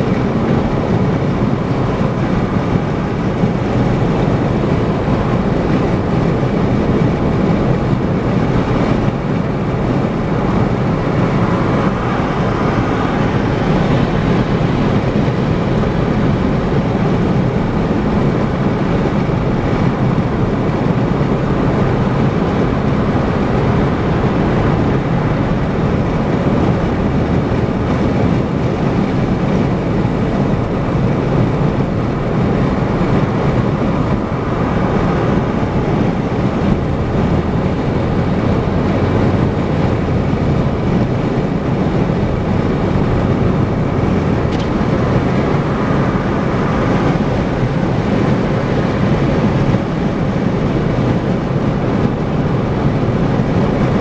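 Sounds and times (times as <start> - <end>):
low engine hum: 0.0 - 54.0
tyre road noise: 0.0 - 54.0.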